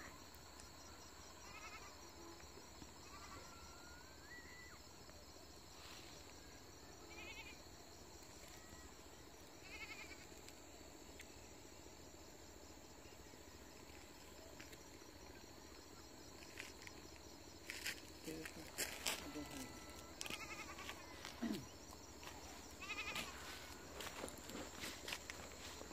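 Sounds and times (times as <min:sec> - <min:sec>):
faint steady high tone: 0:03.1 - 0:05.0, 0:08.3 - 0:09.2, 0:18.3 - 0:21.7.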